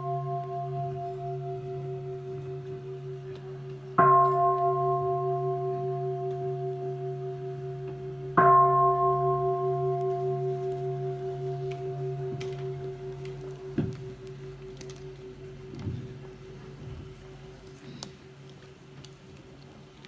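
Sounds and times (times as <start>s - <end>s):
large bowl bell ringing: 0.0s - 18.9s.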